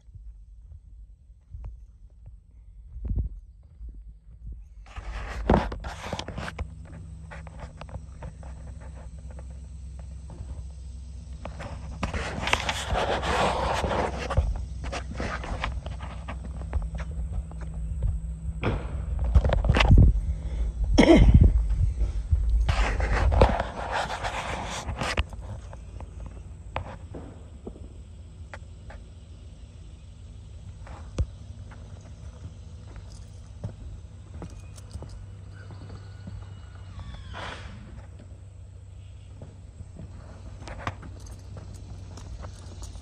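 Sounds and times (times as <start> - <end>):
footsteps on rubber roof: 0.0 - 10.8, 11.4 - 27.9, 30.6 - 38.4, 39.2 - 43.0
steady low rumble: 0.0 - 43.0
person breathing hard: 20.2 - 22.3.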